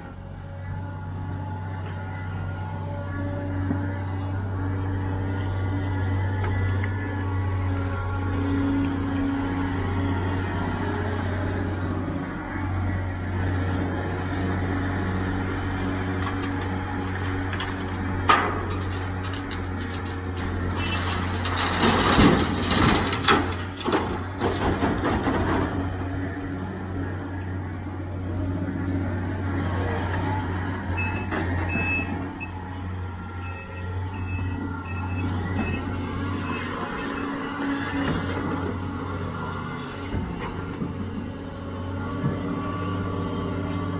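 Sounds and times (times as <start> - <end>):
excavator diesel engine running: 0.0 - 43.9
dirt and stones rattling into truck: 16.0 - 26.0
reversing alarm beeping: 31.0 - 32.6, 33.4 - 37.6.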